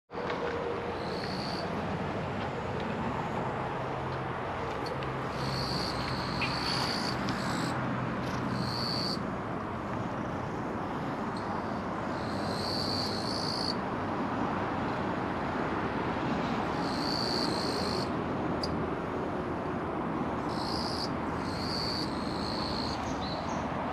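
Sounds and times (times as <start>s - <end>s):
rushing background noise: 0.2s - 23.9s
insect buzzing call: 1.0s - 1.7s, 5.3s - 9.2s, 11.7s - 13.8s, 16.8s - 18.1s, 20.5s - 23.2s.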